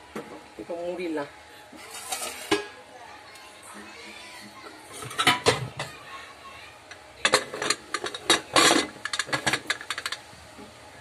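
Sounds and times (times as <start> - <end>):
metal scraping: 1.8 - 2.6.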